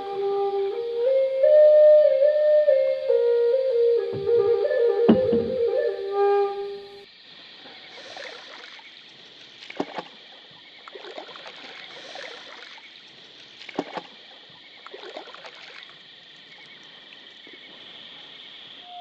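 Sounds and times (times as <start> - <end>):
steady high hiss: 0.0 - 10.8
paddle strokes in water: 4.1 - 6.1, 7.6 - 18.3.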